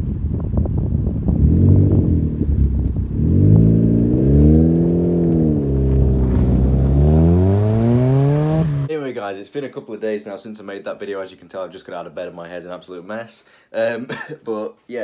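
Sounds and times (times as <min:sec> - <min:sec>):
car engine accelerating: 0:01.3 - 0:08.9.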